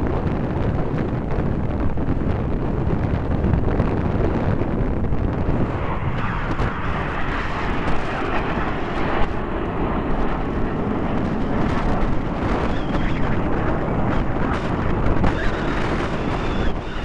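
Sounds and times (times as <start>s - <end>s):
wind buffeting microphone: 0.0s - 17.0s
jets flying past: 4.3s - 17.0s.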